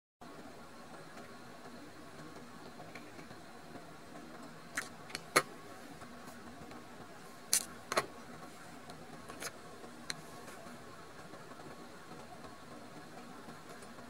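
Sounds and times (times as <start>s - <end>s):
faint steady background noise: 0.2s - 14.0s.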